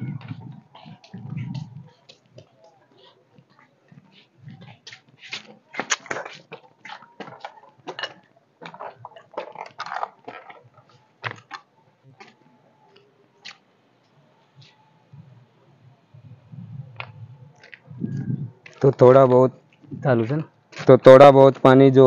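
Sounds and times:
flip-flops scuffing on concrete: 3.9 - 8.0.

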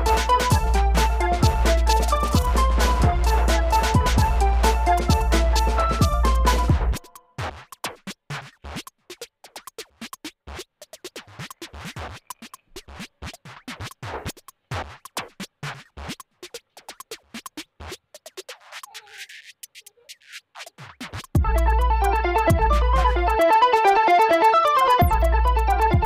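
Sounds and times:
electronic music: 0.0 - 7.3, 21.0 - 26.0.

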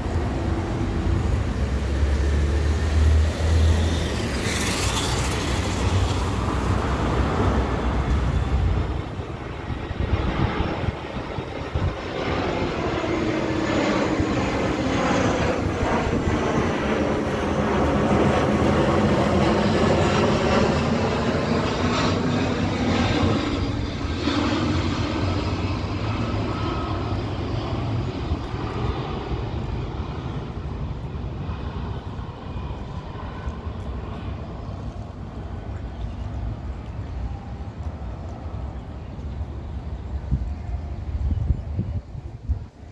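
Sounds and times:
jet flying low overhead: 0.0 - 42.9.

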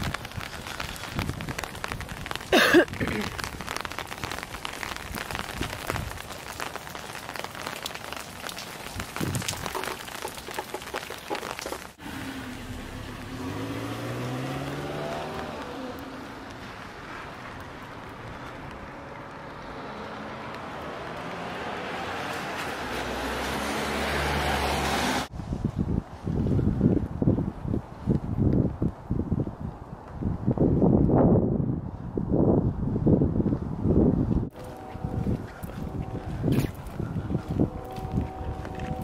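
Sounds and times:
raindrops ticking: 0.0 - 21.3
vehicle engine rising in pitch: 12.0 - 16.2.

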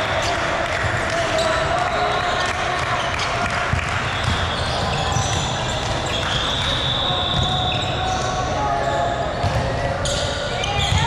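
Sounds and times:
volleyballs thudding: 3.4 - 6.4.

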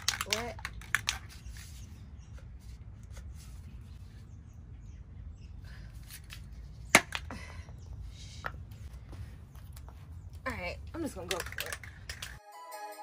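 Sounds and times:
spray can shaken: 0.0 - 1.4, 11.2 - 12.4.

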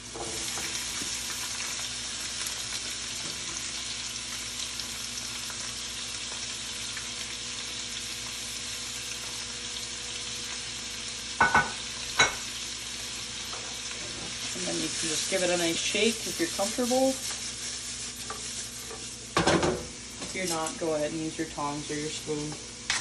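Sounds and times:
food sizzling in a frying pan: 0.0 - 23.0.

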